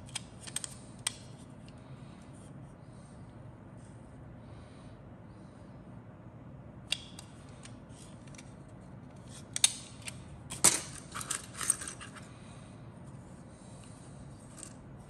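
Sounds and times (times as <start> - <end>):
plastic parts clicking and clattering: 0.0 - 1.3, 7.6 - 12.3.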